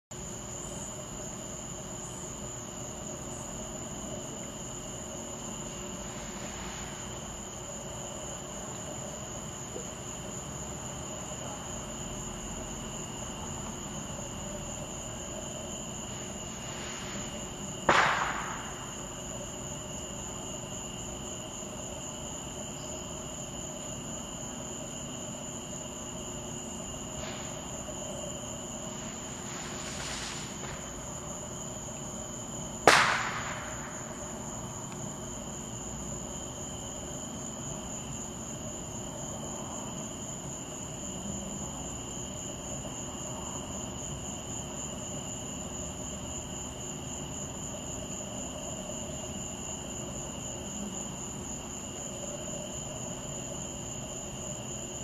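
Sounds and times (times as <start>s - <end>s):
night insect chorus: 0.1s - 55.0s
constant high whine: 0.2s - 55.0s
loud fireworks bangs: 16.6s - 19.4s, 29.1s - 31.4s, 32.8s - 34.8s.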